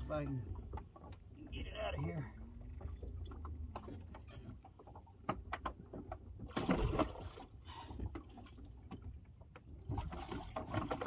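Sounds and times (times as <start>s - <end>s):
water splashing: 0.0s - 11.0s
knocks and clicks against tank: 3.2s - 6.4s.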